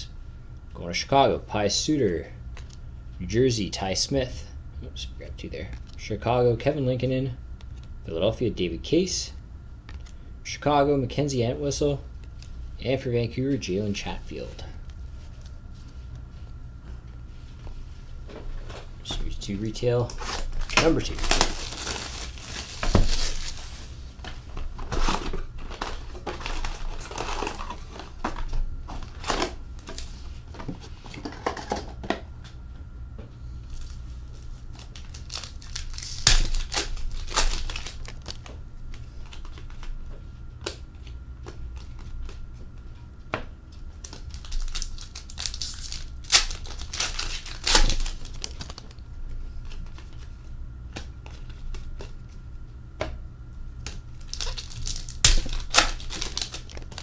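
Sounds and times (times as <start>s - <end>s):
card handling: 18.3s - 32.2s, 33.7s - 42.9s, 43.8s - 52.4s, 53.8s - 57.0s
wrapper and cardboard crinkling and tearing: 19.9s - 30.1s, 33.7s - 38.5s, 44.0s - 49.0s, 53.9s - 57.0s.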